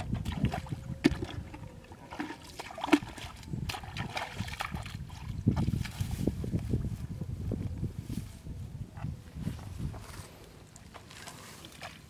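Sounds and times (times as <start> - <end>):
bare feet splashing in mud: 0.0 - 6.3, 9.9 - 12.0.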